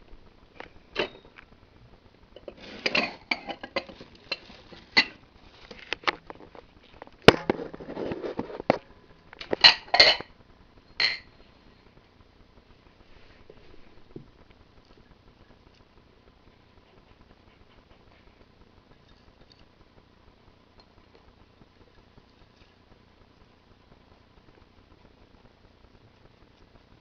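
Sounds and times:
ceramic bowls clinking: 0:02.4 - 0:05.2, 0:09.6 - 0:10.3, 0:11.0 - 0:11.3.

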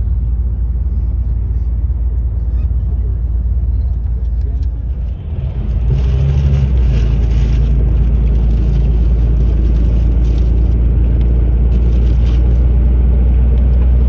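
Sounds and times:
bus engine drone: 0:00.0 - 0:14.0
road noise: 0:00.0 - 0:14.0.

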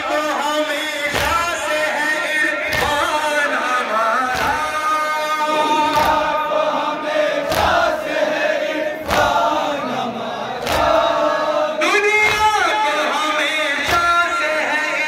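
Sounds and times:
men chanting in unison: 0:00.0 - 0:15.0
hands slapping chests: 0:01.1 - 0:01.6, 0:02.6 - 0:03.2, 0:04.3 - 0:04.8, 0:05.8 - 0:06.4, 0:07.4 - 0:08.1, 0:09.0 - 0:09.6, 0:10.6 - 0:11.2, 0:12.2 - 0:12.6.

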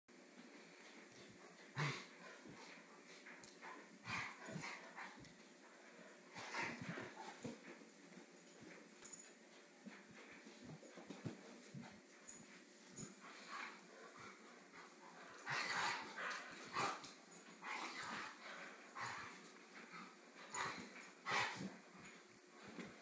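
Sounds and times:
dogs scuffling: 0:00.6 - 0:23.0
dogs growling: 0:01.6 - 0:02.8, 0:13.0 - 0:21.8.

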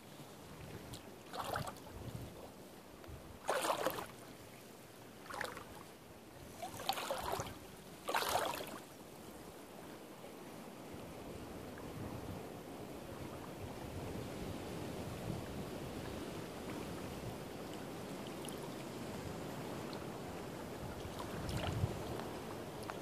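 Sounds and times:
faint steady hiss: 0:00.0 - 0:23.0
water splashing and lapping: 0:00.5 - 0:02.6, 0:03.4 - 0:09.0, 0:16.3 - 0:23.0.

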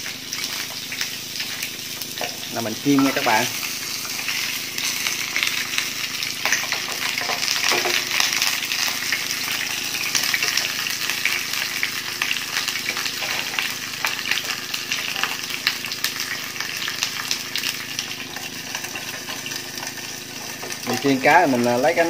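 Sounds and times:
fish frying in oil: 0:00.0 - 0:22.0.

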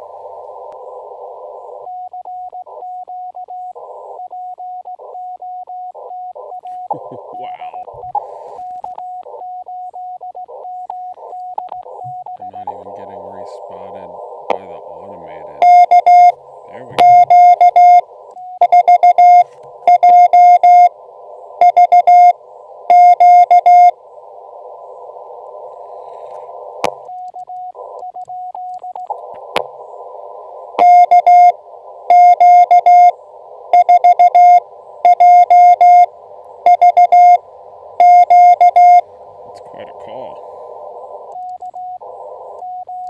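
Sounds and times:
radio band hiss: 0:00.0 - 0:43.0
morse code beeps: 0:01.8 - 0:07.0, 0:07.9 - 0:13.1, 0:15.6 - 0:16.4, 0:17.0 - 0:21.0, 0:21.6 - 0:24.0, 0:26.9 - 0:29.1, 0:30.8 - 0:37.4, 0:38.0 - 0:39.0, 0:41.2 - 0:43.0
sharp clicks: 0:10.5 - 0:12.8, 0:26.3 - 0:29.7, 0:41.2 - 0:41.9
faint single tone: 0:17.0 - 0:20.9, 0:21.6 - 0:24.0, 0:30.8 - 0:37.4, 0:38.0 - 0:39.0.

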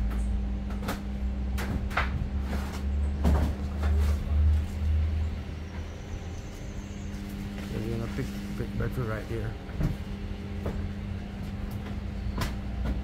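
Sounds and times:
knocks and rustles: 0:00.0 - 0:04.6
heavy low rumble: 0:00.0 - 0:13.0
steady low hum: 0:00.0 - 0:13.0.

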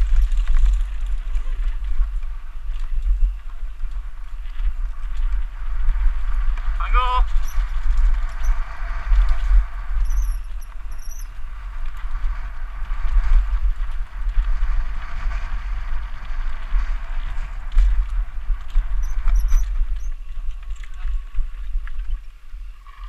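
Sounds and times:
wind buffeting microphone: 0:00.0 - 0:23.0
high squeaks: 0:10.0 - 0:11.3.

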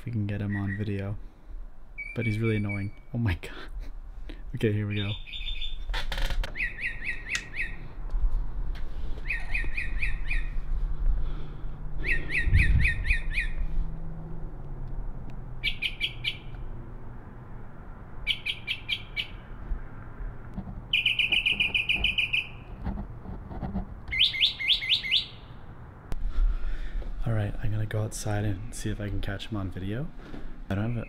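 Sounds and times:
mockingbird singing: 0:00.3 - 0:01.1, 0:02.0 - 0:03.3, 0:04.8 - 0:05.9, 0:06.5 - 0:07.8, 0:09.2 - 0:10.6, 0:12.0 - 0:13.6, 0:15.6 - 0:16.6, 0:18.2 - 0:19.5, 0:20.9 - 0:22.7, 0:24.1 - 0:25.6.

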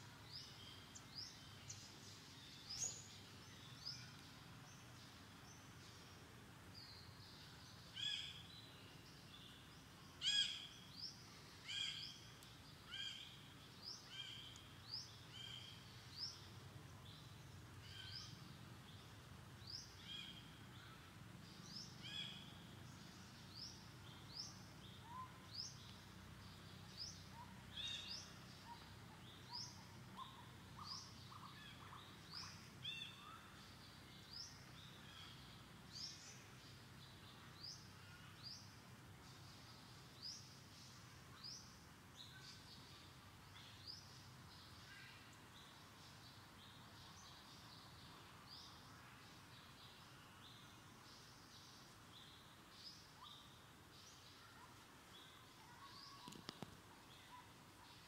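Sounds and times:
faint outdoor background noise: 0:00.0 - 0:58.0
birds chirping: 0:00.2 - 0:06.2.

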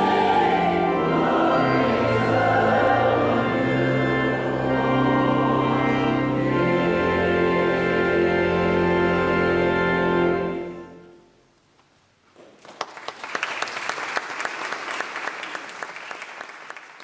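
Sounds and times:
choir and pipe organ chord: 0:00.0 - 0:11.2
audience applauding: 0:12.4 - 0:17.0.

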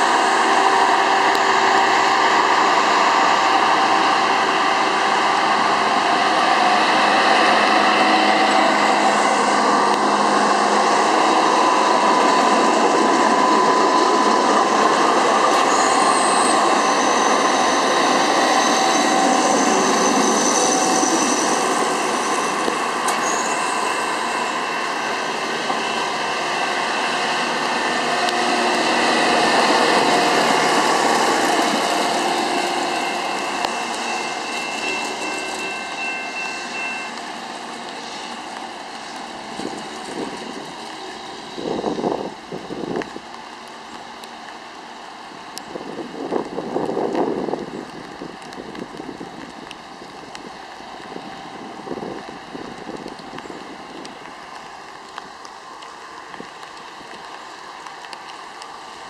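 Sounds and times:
high-pitched whine: 0:00.0 - 0:43.1
diesel engines of rail machines: 0:00.0 - 0:59.0.

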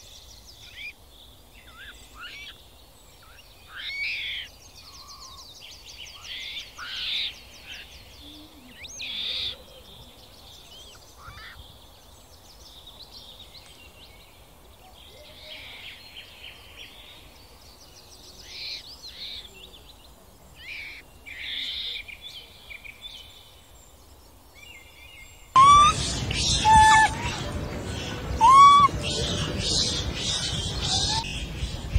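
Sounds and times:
birds chirping: 0:15.9 - 0:31.9
fast high bird trill: 0:25.6 - 0:31.6.

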